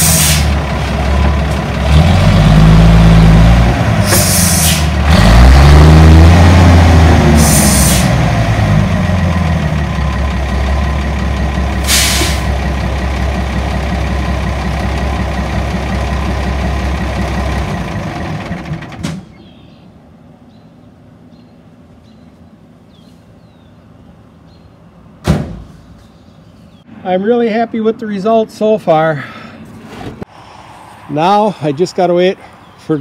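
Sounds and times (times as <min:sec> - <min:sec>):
air brake hisses: 0:00.0 - 0:00.5, 0:04.1 - 0:04.9, 0:07.4 - 0:08.1, 0:11.8 - 0:12.5
truck engine revving and idling: 0:00.0 - 0:19.3.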